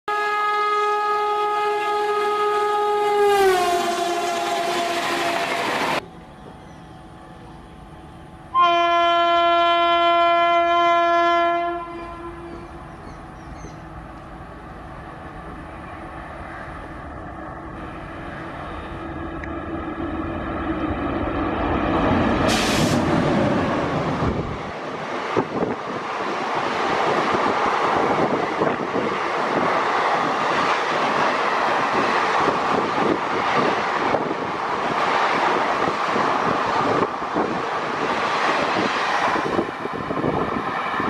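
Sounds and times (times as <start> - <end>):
lower train horn: 0.1 - 6.0, 8.4 - 13.0
train horn: 0.1 - 6.0, 8.5 - 12.8
train rumbling: 1.2 - 41.0.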